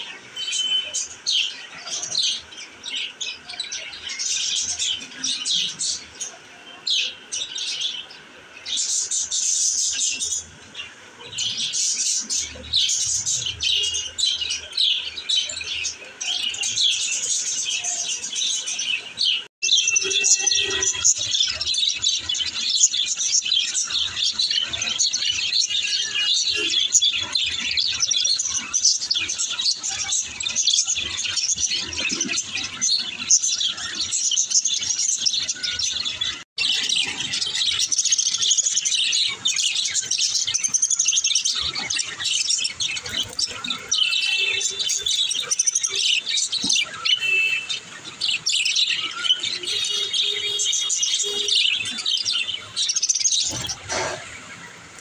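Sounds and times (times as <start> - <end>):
budgerigars chattering: 22.8 - 54.7.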